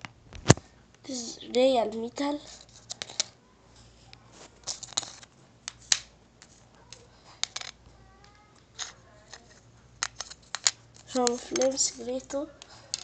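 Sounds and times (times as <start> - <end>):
toy parts clicking on wooden table: 4.7 - 13.0.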